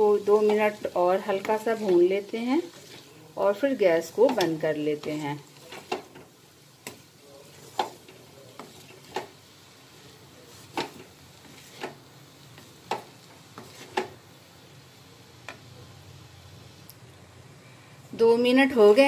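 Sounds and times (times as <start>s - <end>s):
faint sizzle: 0.0s - 19.0s
spatula scraping metal pan: 0.2s - 3.2s, 6.8s - 9.3s, 10.5s - 12.0s, 13.6s - 14.1s.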